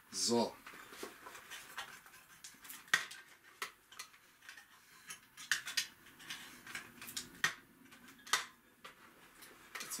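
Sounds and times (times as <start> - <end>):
plastic toy parts clicking: 1.8 - 8.6.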